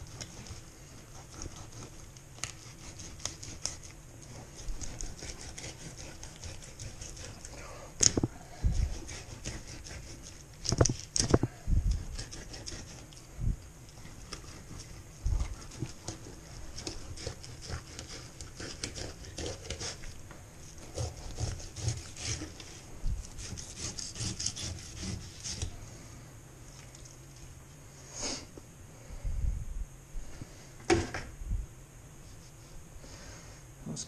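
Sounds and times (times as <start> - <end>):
knife rasping through fish: 0.0 - 13.2, 13.9 - 25.8.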